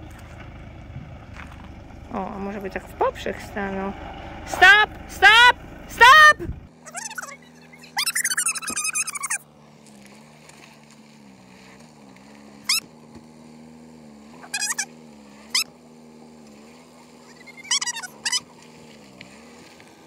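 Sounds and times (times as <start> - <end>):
truck engine humming: 0.0 - 20.0
loud high chirps: 6.9 - 9.4, 14.4 - 14.9, 17.2 - 18.4.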